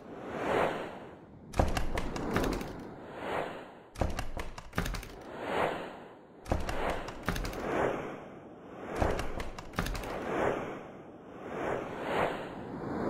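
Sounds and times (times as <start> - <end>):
sharp clicks: 1.5 - 2.9, 4.0 - 5.3, 6.5 - 7.7, 9.0 - 10.2.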